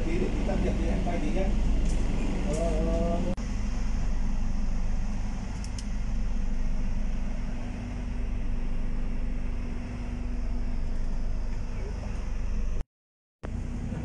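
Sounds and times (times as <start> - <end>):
ferry engines rumbling: 0.0 - 12.8.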